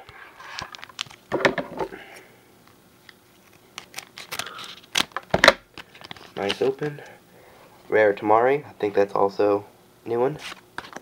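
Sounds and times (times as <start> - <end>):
wrapper crinkling and tearing: 3.3 - 6.8.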